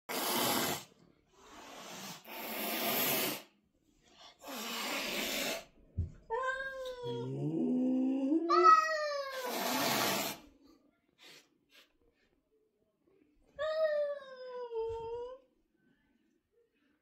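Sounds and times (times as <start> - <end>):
cat hissing: 0.1 - 3.6, 4.4 - 5.8, 8.6 - 10.6
cat yowling: 8.4 - 10.1.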